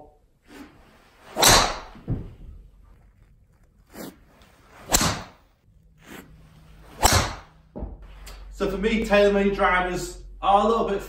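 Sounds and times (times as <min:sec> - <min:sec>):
golf driver striking ball: 0:01.4 - 0:02.0, 0:04.9 - 0:05.4, 0:07.0 - 0:07.6.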